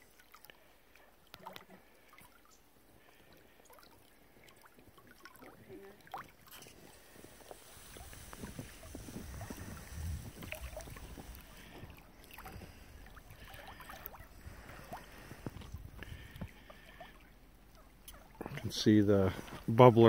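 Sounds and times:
water gurgling and splashing: 0:00.0 - 0:20.0
wind rumbling on microphone: 0:06.3 - 0:13.5, 0:14.2 - 0:16.6.

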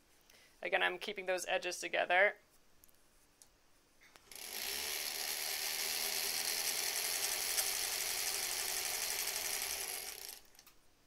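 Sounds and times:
sewing machine running: 0:04.3 - 0:10.7.

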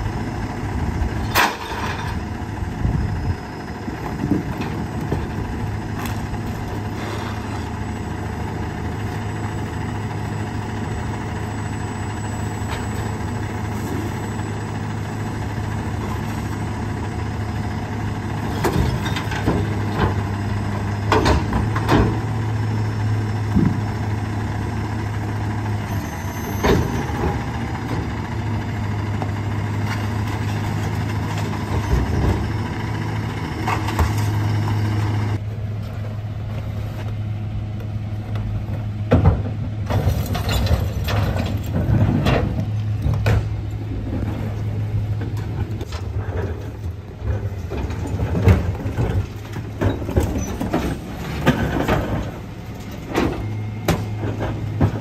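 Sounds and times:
garbage truck diesel engine idling: 0:00.0 - 0:36.6
knocks and clatters of bins: 0:18.4 - 0:20.3, 0:20.9 - 0:22.4, 0:38.7 - 0:55.0.

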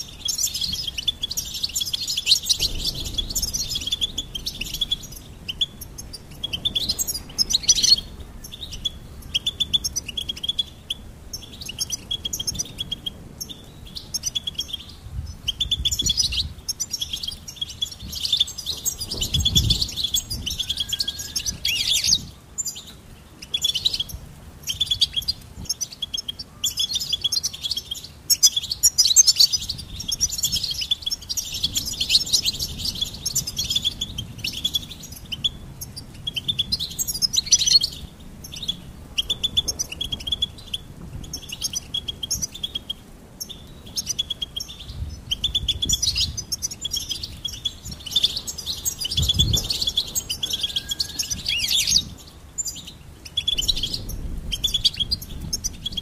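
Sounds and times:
goldfinch singing: 0:00.0 - 0:56.0
low rumble: 0:00.6 - 0:14.1.

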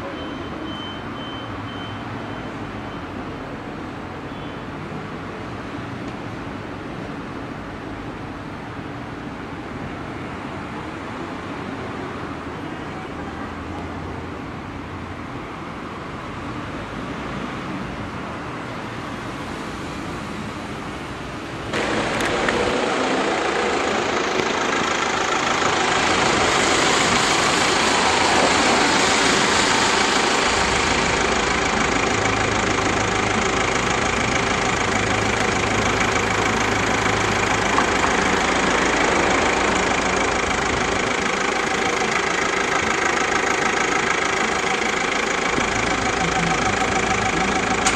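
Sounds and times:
street traffic noise: 0:00.0 - 0:47.9
vehicle engine idling: 0:21.5 - 0:47.9.

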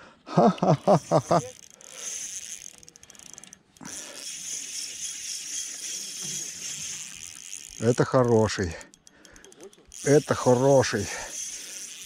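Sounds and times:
man laughing: 0:00.3 - 0:01.6.

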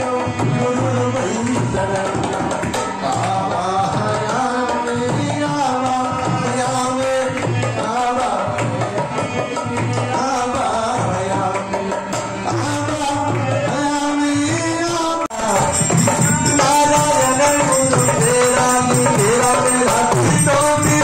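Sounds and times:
devotional singing into microphone: 0:00.0 - 0:21.0
hand drum rhythm: 0:15.4 - 0:21.0.

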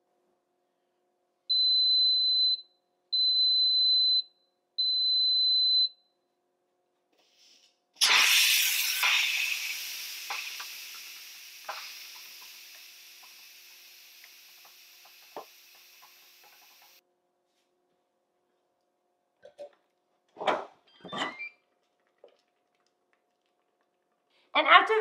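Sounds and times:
steam valve hissing: 0:08.0 - 0:17.0
small crackles and clicks: 0:21.8 - 0:24.3.

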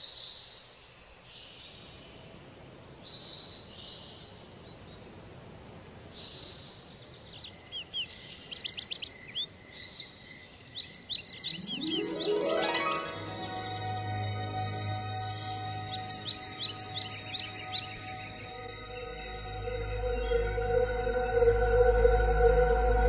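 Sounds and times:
bird calls and chirps: 0:06.2 - 0:20.7
faint steady high tone: 0:11.5 - 0:23.0.

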